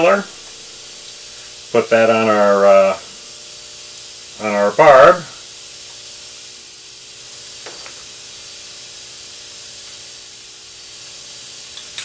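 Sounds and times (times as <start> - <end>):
steady hiss: 0.0 - 12.0.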